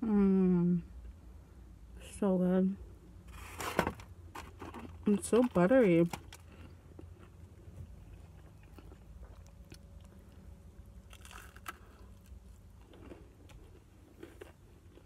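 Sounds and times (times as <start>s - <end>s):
steady low hum: 0.0s - 15.0s
quiet chewing: 6.2s - 15.0s
crunchy bite into fried food: 8.1s - 15.0s.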